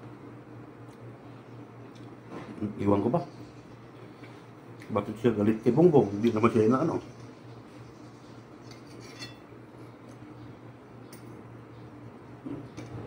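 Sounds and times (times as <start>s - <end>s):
steady low hum: 0.0s - 13.0s
cutlery clinking on plate: 8.7s - 9.4s.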